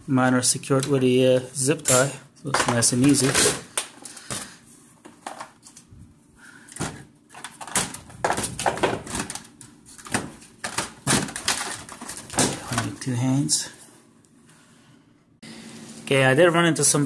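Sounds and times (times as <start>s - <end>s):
plastic covers clicking and scraping: 1.8s - 5.9s, 6.7s - 13.2s.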